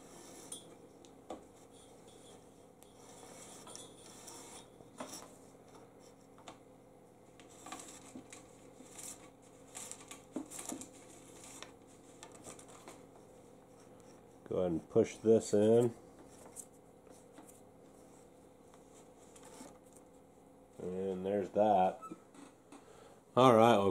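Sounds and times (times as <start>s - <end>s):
wires rubbing and scraping in tube: 2.8s - 5.4s.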